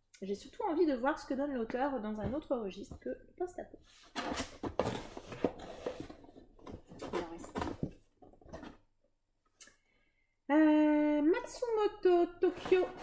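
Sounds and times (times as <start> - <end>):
paper and cardboard rustling: 3.8 - 8.8, 12.4 - 13.0.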